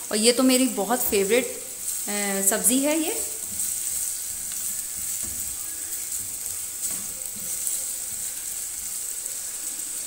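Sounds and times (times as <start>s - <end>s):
onions sizzling in hot oil: 0.0s - 10.0s
spatula stirring in pot: 0.8s - 10.0s.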